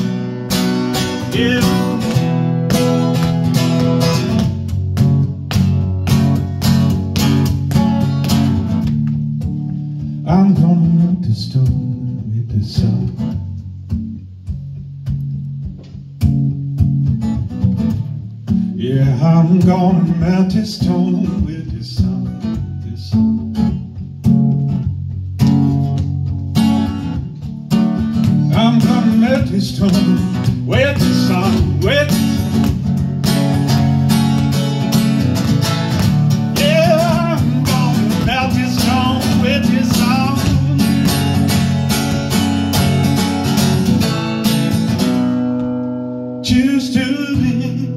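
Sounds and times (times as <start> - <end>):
acoustic guitar strumming: 0.0 - 47.9
man singing: 1.0 - 2.8, 10.2 - 13.5, 18.8 - 23.6, 28.3 - 32.9, 36.3 - 41.6, 46.4 - 47.9.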